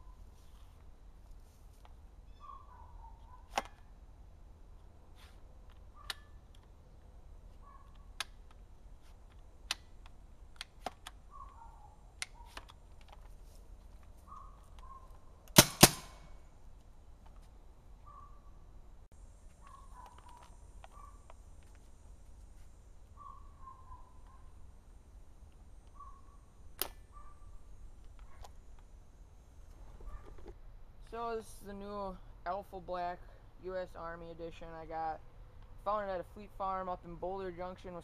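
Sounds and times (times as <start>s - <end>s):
paintball gun shots: 15.5s - 16.4s.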